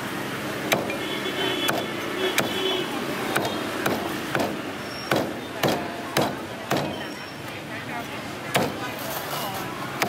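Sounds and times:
cleaver chopping on wooden block: 0:00.7 - 0:01.0, 0:01.7 - 0:02.6, 0:03.3 - 0:07.0, 0:08.5 - 0:08.8.

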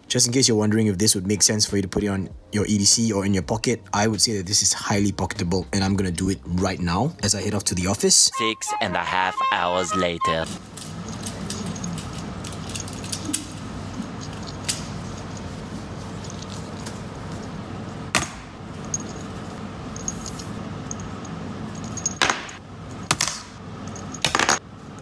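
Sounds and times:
low room hum: 0:00.0 - 0:25.0
metal knuckle roller clicking: 0:10.6 - 0:15.5.

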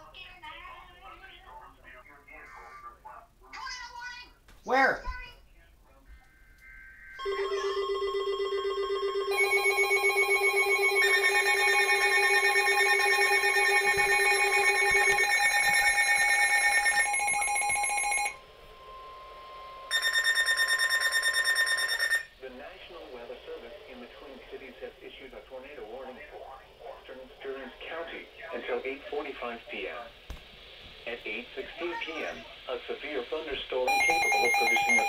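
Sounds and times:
steady alarm tone: 0:06.3 - 0:22.5, 0:33.8 - 0:35.0
pulsing shrill phone alert tones: 0:06.6 - 0:22.3, 0:33.9 - 0:35.0.

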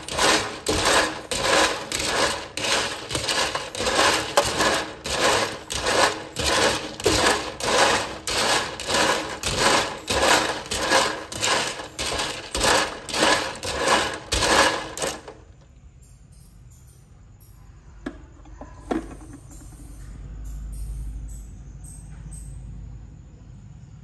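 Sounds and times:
brush scrubbing shells in water: 0:00.0 - 0:15.4.

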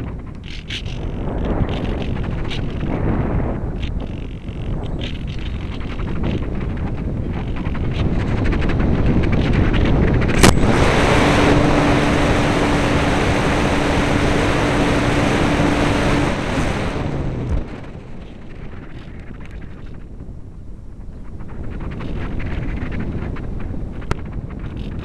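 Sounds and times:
steady low hum: 0:00.0 - 0:25.0
wind rushing over microphone: 0:00.0 - 0:25.0
sharp click: 0:10.3 - 0:10.7.

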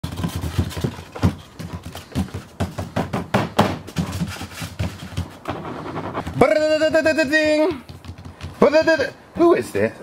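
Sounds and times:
fingers tapping on paper: 0:07.3 - 0:09.0.

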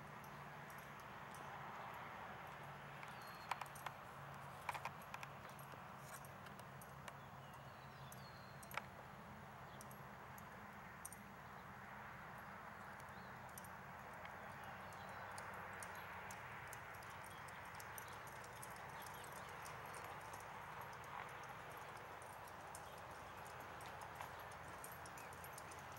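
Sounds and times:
muffled hoofbeats on sand: 0:17.0 - 0:25.9.

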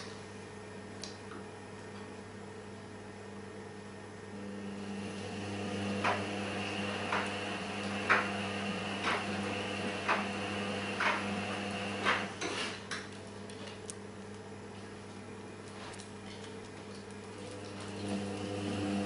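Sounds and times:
tumble dryer running: 0:04.3 - 0:12.6, 0:17.0 - 0:19.0.

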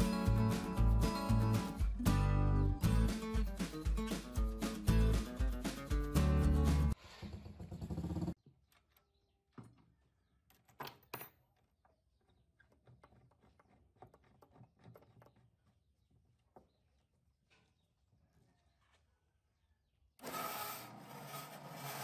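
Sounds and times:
background music: 0:00.0 - 0:07.0.

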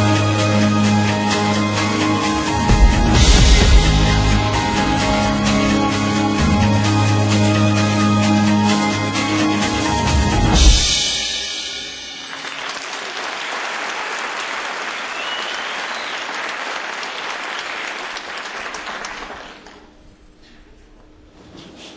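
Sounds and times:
drum and cymbal hit: 0:01.4 - 0:08.5, 0:09.7 - 0:12.6
band playing final chord: 0:01.4 - 0:12.7
audience applauding: 0:12.1 - 0:19.9
short rising whistle: 0:15.1 - 0:16.2.

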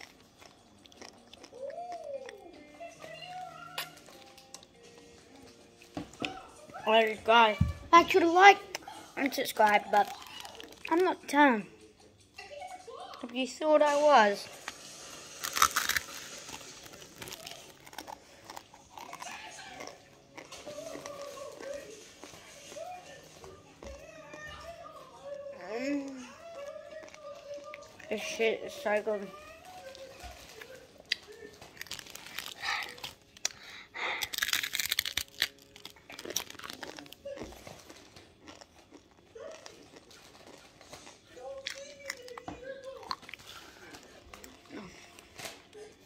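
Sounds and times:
crunching dry noodles: 0:00.0 - 0:02.5, 0:09.6 - 0:11.0, 0:14.6 - 0:23.2, 0:29.3 - 0:46.0.

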